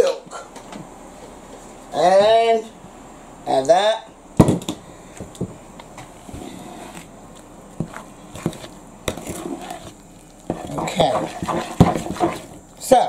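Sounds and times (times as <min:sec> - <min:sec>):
spoon stirring batter in bowl: 0:06.3 - 0:12.6.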